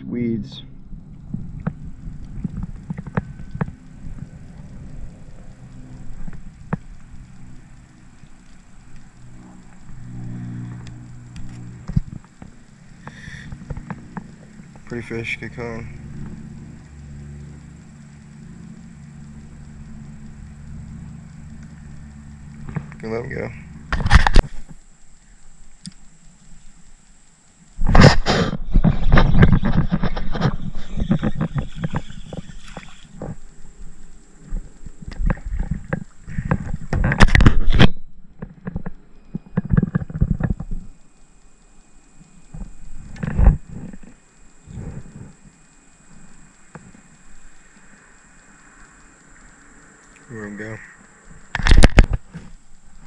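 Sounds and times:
faint hiss: 0:00.0 - 0:53.0
low motor hum: 0:00.0 - 0:53.0
small clicks and knocks: 0:01.1 - 0:53.0
knocks and rubbing on microphone: 0:27.9 - 0:32.9.

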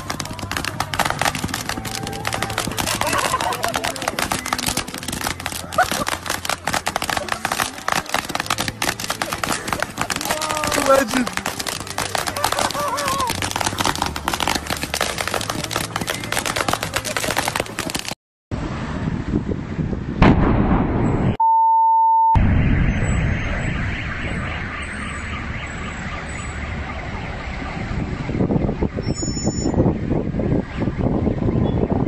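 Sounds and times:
firework fountains crackling: 0:00.0 - 0:18.2
traffic noise: 0:00.0 - 0:20.2, 0:22.4 - 0:32.0
rumble of fire: 0:00.0 - 0:21.4, 0:22.4 - 0:32.0
fireball explosion blast: 0:18.9 - 0:21.4, 0:22.4 - 0:25.6
steady beep: 0:21.4 - 0:25.8.

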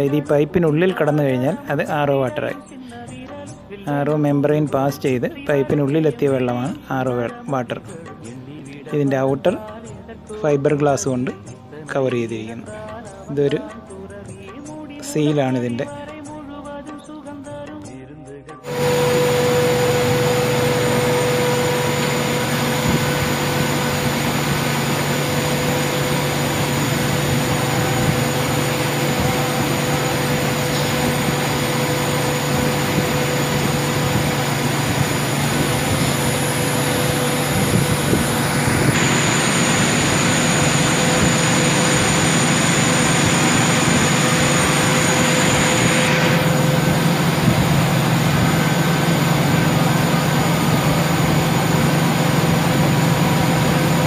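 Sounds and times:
machinery hum: 0:18.6 - 0:54.0
faint steady whines: 0:18.7 - 0:54.0.

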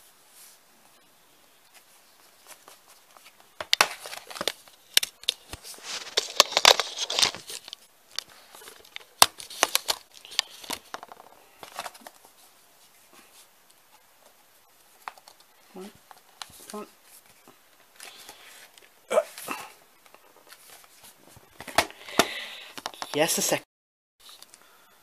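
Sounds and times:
plastic wrap tearing and crinkling: 0:02.4 - 0:12.2.

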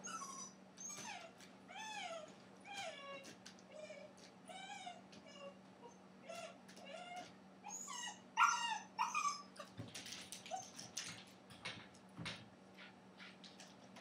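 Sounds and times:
puppy whining and yelping: 0:00.0 - 0:11.0.

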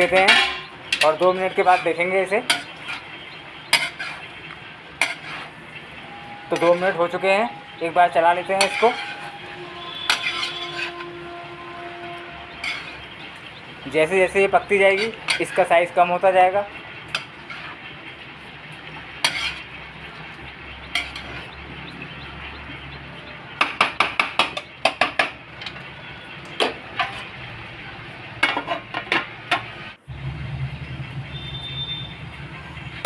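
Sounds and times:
metal spatula clinking on pan: 0:00.0 - 0:03.0, 0:03.7 - 0:04.2, 0:05.0 - 0:05.4, 0:06.6 - 0:06.9, 0:08.4 - 0:09.3, 0:09.9 - 0:11.0, 0:12.6 - 0:13.0, 0:14.9 - 0:15.6, 0:19.2 - 0:19.7, 0:20.9 - 0:21.4
low sizzle: 0:00.0 - 0:23.8, 0:24.6 - 0:33.0.

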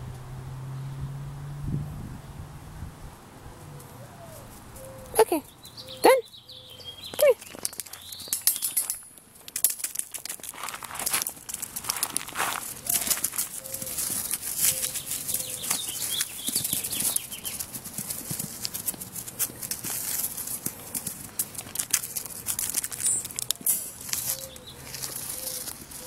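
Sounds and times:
puppy scrambling on dry grass: 0:07.0 - 0:26.0.

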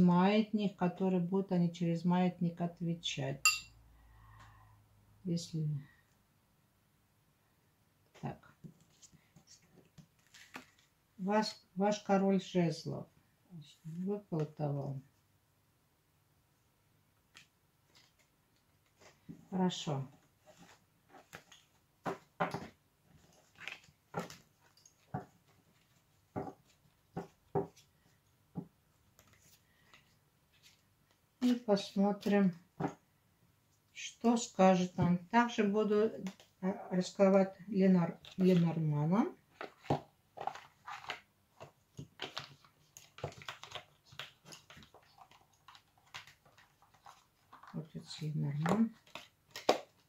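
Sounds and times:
cards shuffled by hand: 0:39.6 - 0:50.0.

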